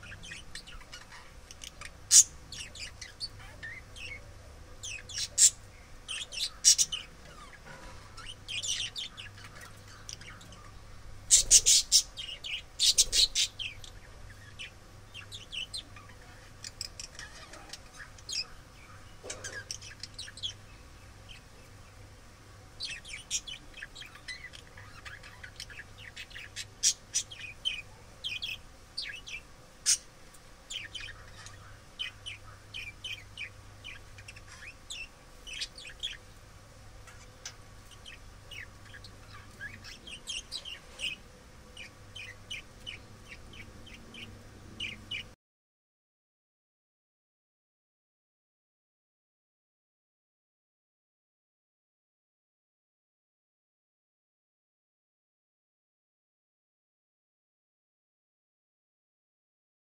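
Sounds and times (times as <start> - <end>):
budgerigars chirping: 0.0 - 4.2, 4.8 - 20.6, 22.8 - 30.1, 30.7 - 36.2, 37.1 - 41.2, 41.8 - 45.3.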